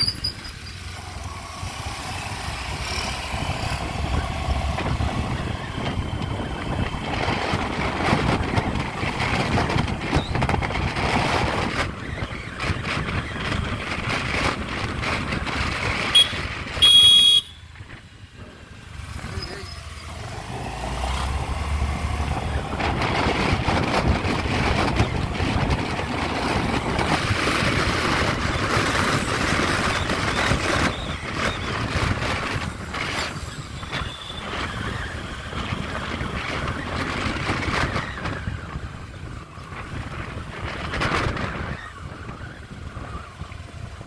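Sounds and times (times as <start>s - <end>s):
wind buffeting microphone: 0.0s - 44.0s
motor scooter engine: 0.1s - 11.9s.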